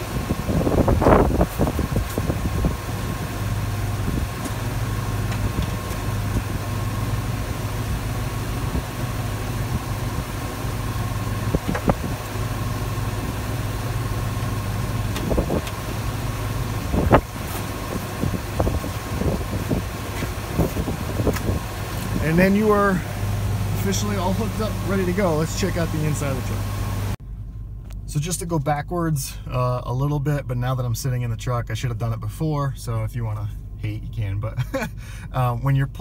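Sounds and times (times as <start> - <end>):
truck engine idling: 0.0 - 28.7.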